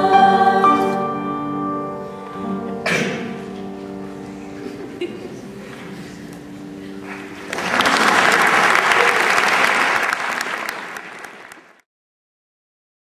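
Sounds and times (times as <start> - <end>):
choir singing held chord: 0.0 - 3.4
audience applause: 7.0 - 11.8.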